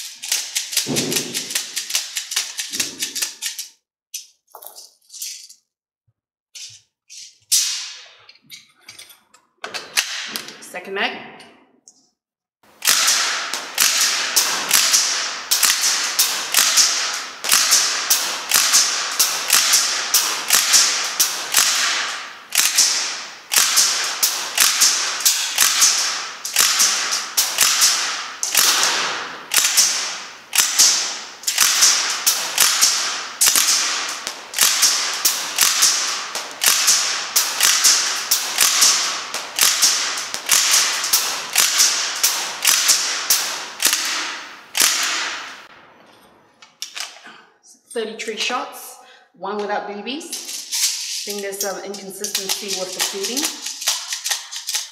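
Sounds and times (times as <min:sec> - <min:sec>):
airsoft gun single shots cracking: 0:00.8 - 0:01.8, 0:12.8 - 0:45.7.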